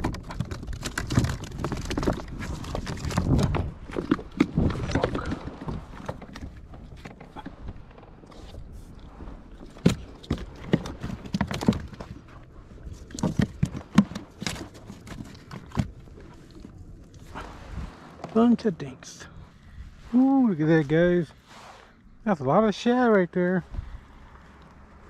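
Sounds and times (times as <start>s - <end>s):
sharp knocks and thumps of fish: 0.0s - 8.0s, 9.6s - 16.7s.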